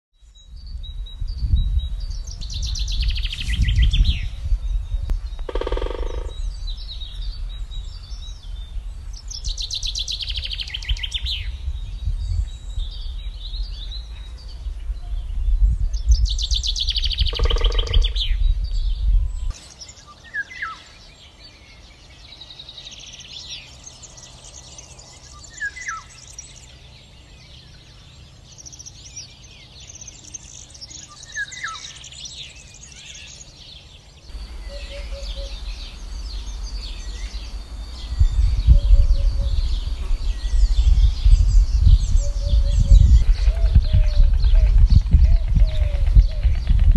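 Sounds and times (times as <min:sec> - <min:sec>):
faint high birdsong: 0:00.1 - 0:46.8
low wind rumble: 0:00.2 - 0:19.6, 0:33.4 - 0:46.9
bird trilled song: 0:00.2 - 0:46.9
bird low oop notes: 0:02.6 - 0:06.8, 0:16.0 - 0:18.4, 0:34.3 - 0:46.9.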